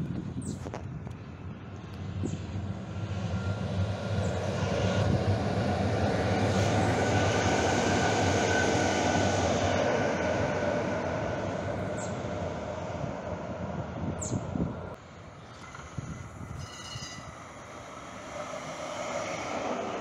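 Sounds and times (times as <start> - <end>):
light-rail train passing: 1.0 - 20.0
thin high whine: 15.1 - 20.0.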